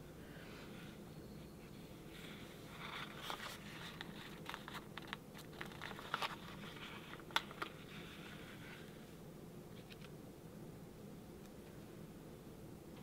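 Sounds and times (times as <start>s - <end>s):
paper sheet crinkling: 2.1s - 8.9s.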